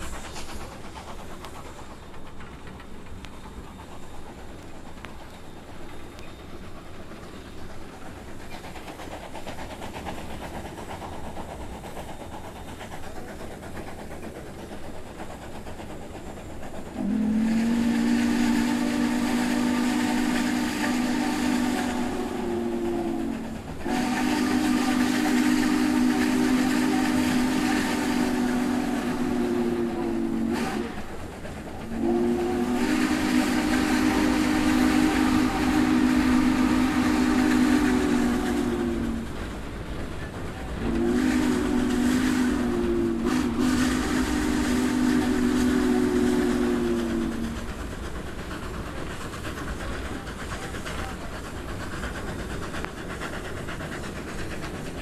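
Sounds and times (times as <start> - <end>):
low train rumble: 0.0 - 55.0
steam locomotive chime whistle: 17.0 - 31.2, 32.0 - 39.2, 40.8 - 47.6.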